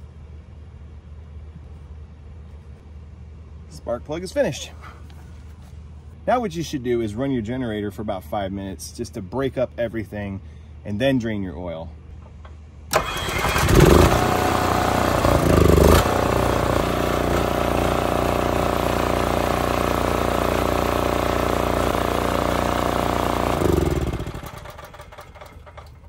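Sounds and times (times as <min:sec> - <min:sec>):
generator running: 0:12.9 - 0:26.0
generator winding down: 0:12.9 - 0:26.0.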